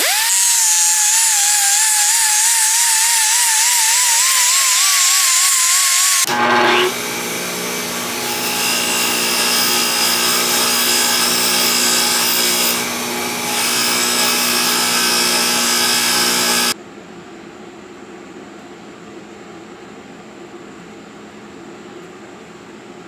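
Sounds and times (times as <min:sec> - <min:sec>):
bench grinder motor hum: 0:00.0 - 0:16.8.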